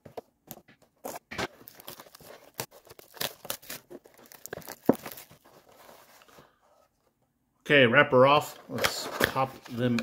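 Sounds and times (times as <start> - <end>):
scissors snipping plastic wrap: 1.5 - 5.3
plastic wrap crinkling: 1.5 - 6.3.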